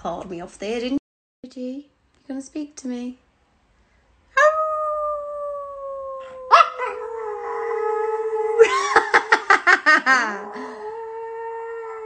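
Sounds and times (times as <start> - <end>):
dog howling: 4.4 - 8.7.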